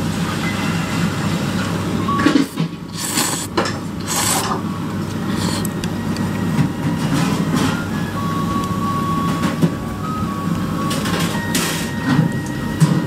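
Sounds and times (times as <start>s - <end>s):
kitchen ventilation hum: 0.0s - 13.0s.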